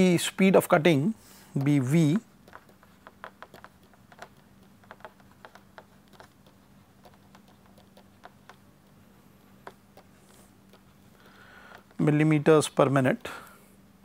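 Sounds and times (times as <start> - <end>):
faint steady hum: 0.0 - 14.0
stylus tapping on tablet: 1.5 - 12.0.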